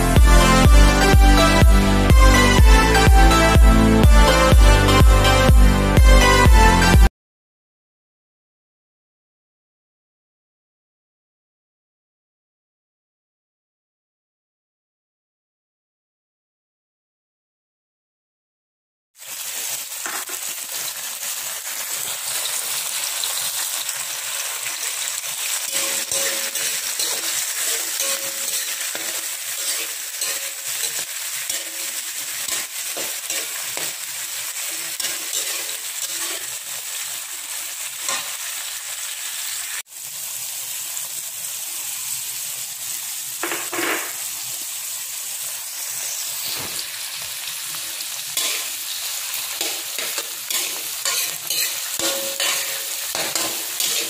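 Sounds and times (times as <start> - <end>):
oil sizzling in a wok: 19.2 - 54.0
metal spatula scraping pan: 25.7 - 36.6, 38.1 - 38.4, 48.4 - 54.0.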